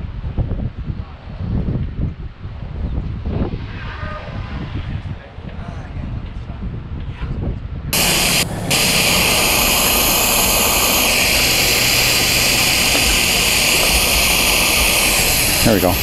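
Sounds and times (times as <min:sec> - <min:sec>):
water rushing from hose: 0:08.0 - 0:16.0.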